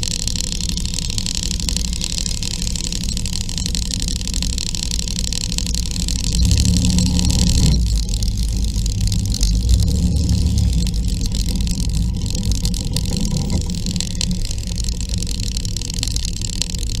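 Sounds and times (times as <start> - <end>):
scooter engine rumbling: 0.0 - 17.0
scooters and traffic passing: 6.0 - 17.0
wind and road noise: 6.4 - 17.0.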